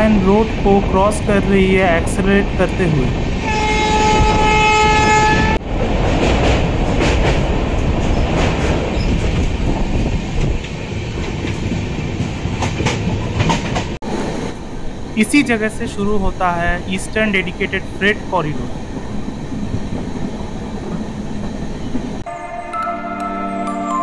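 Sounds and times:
train coaches clattering on track: 0.0 - 22.2
locomotive horn: 3.4 - 5.6.

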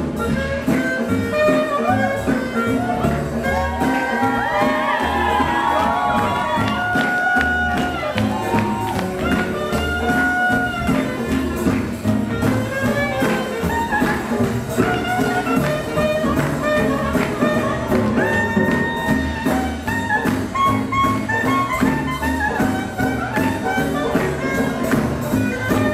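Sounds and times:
bass and drum beat: 0.0 - 25.9
swing jazz instrumental: 0.0 - 25.9.

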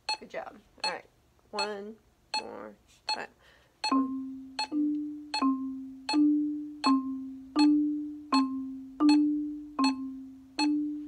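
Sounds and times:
marimba low notes: 3.8 - 11.0.

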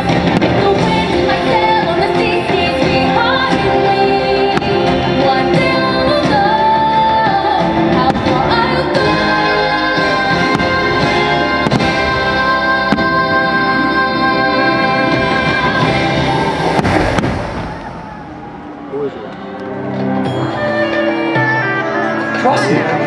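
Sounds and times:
orchestral pop song with singing: 0.0 - 18.2, 20.2 - 23.0
firework bangs: 10.4 - 13.4, 15.6 - 18.6.

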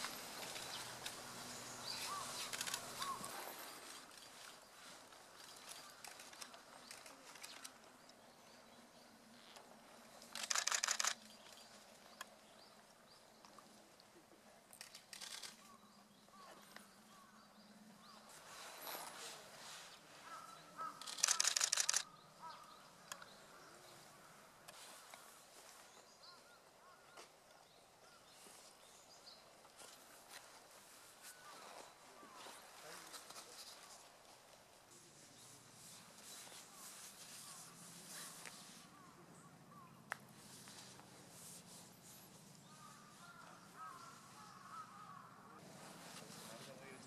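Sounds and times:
camera shutter bursts: 10.3 - 11.2, 14.8 - 15.6, 21.0 - 22.1.

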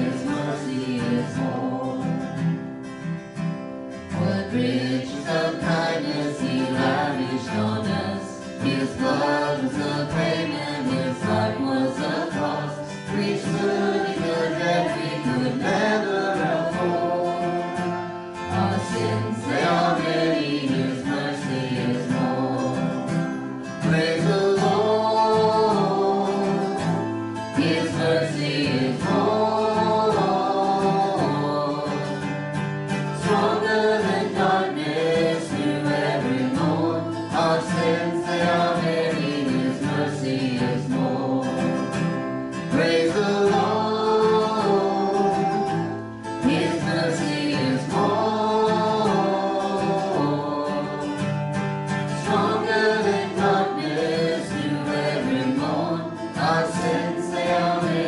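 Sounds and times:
woman singing into a microphone: 0.0 - 2.4, 4.2 - 32.3, 42.7 - 51.2, 52.1 - 58.0
strummed acoustic guitar: 0.0 - 58.0.

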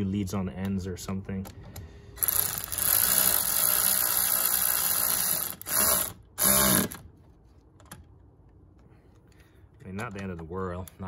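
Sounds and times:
ratchet wrench clicking: 2.2 - 7.0.

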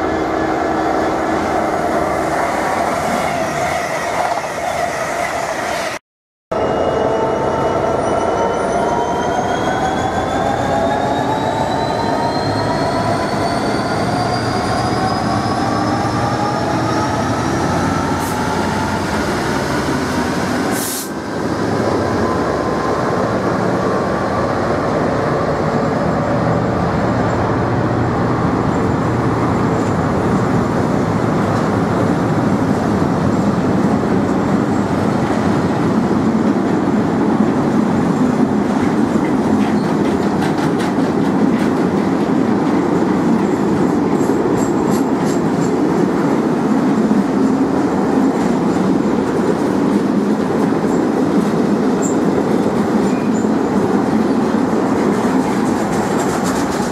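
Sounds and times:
whining tones rising in pitch: 6.6 - 19.5
freight train wheels rumbling on rails: 9.2 - 56.9.

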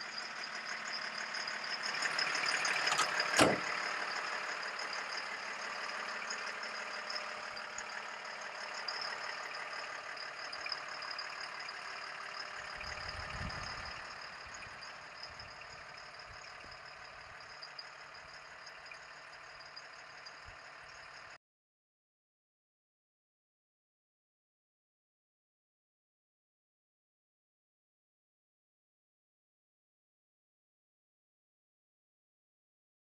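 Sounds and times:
diesel truck engine idling: 0.0 - 21.3.

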